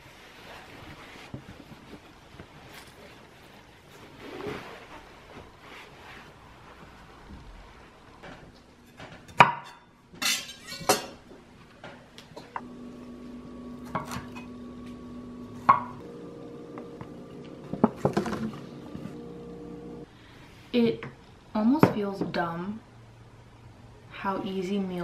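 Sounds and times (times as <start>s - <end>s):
steady low hum: 12.6s - 20.4s.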